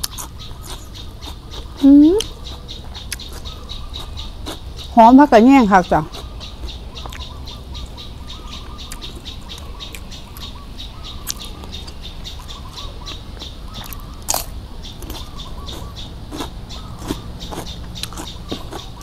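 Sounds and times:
chewing and mouth sounds: 0.0 - 4.7, 6.0 - 7.9, 11.2 - 12.8, 13.4 - 19.0
crunchy bite: 0.0 - 4.7, 13.7 - 19.0
birds chirping: 0.0 - 19.0.

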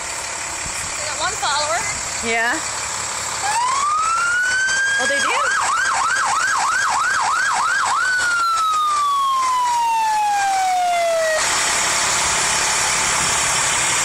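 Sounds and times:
truck engine rushing noise: 0.0 - 14.0
fire truck siren: 3.4 - 14.0.

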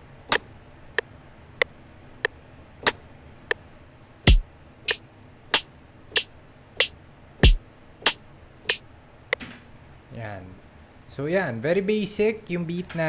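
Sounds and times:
sharp drum hits: 4.3 - 5.0, 6.2 - 7.6.

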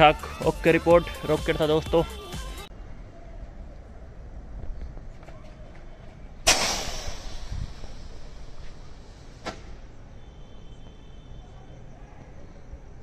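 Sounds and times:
rocket launching whoosh: 6.4 - 9.8
firework sharp crack: 6.4 - 9.9.

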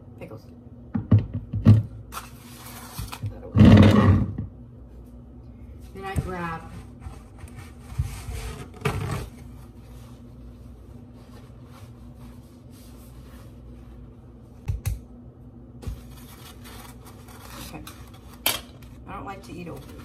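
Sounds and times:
steady low hum: 0.0 - 20.0
knocks on a counter: 0.9 - 1.9
paper towel rustling: 6.6 - 14.6, 15.8 - 20.0.

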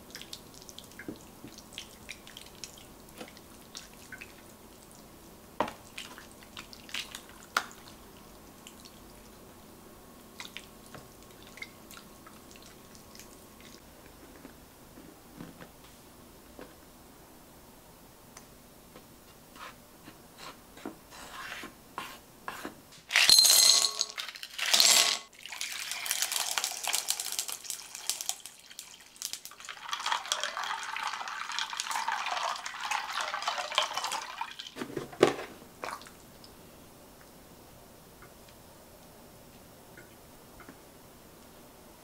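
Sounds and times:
water poured over ice cubes: 25.4 - 34.8.

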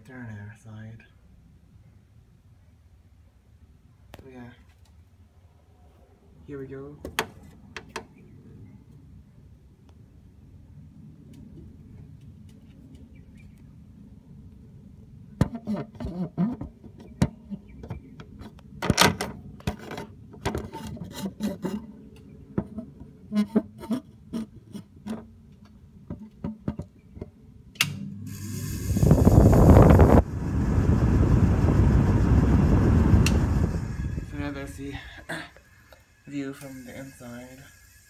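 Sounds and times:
phone scraping plastic grille: 19.7 - 21.9
air conditioner fan blowing: 27.8 - 38.0.

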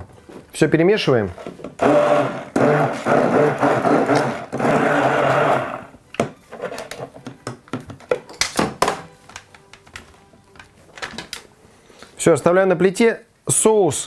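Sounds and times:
immersion blender running: 1.8 - 5.9.

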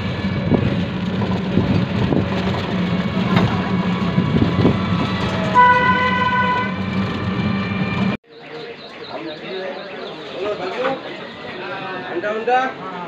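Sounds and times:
rickshaw engine hum and rattle: 0.0 - 13.0
vehicle horn toot: 5.3 - 6.9.

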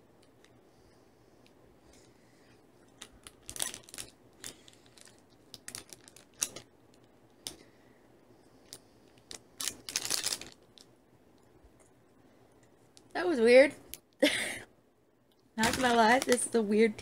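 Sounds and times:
plastic candy wrapper crinkling: 2.8 - 7.6, 8.6 - 11.0, 15.6 - 16.7.

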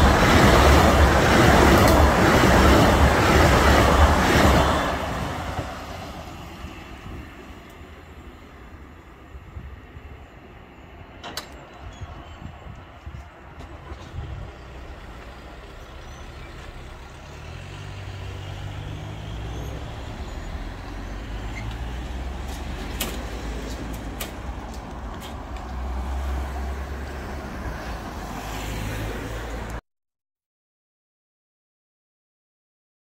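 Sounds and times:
wheels clacking over crossing: 0.0 - 5.9
car engines pulling away: 13.8 - 29.8.

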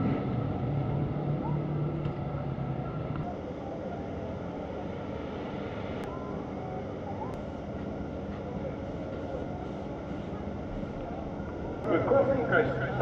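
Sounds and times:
motorcycle engines running: 0.0 - 3.4
low hum: 0.0 - 13.0.

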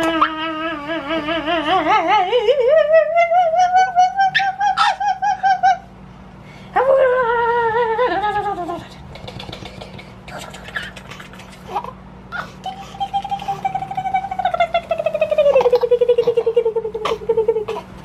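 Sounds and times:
deep wavering howling: 0.0 - 5.9, 12.3 - 17.8.

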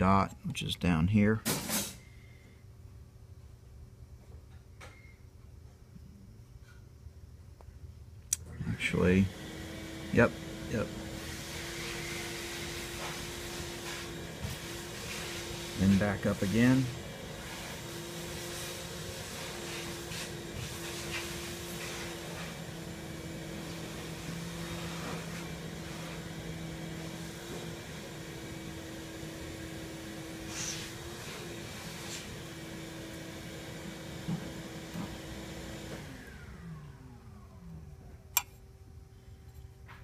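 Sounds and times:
electric motor humming: 8.6 - 38.5.

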